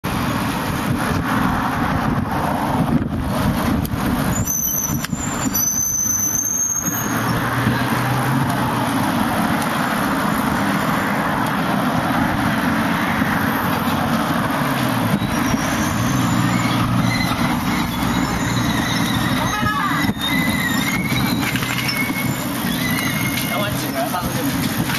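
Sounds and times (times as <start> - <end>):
road traffic: 0.0 - 24.9
wind on microphone: 0.1 - 5.8, 7.2 - 23.4
bicycle brake squeals: 4.3 - 7.4, 15.1 - 24.3.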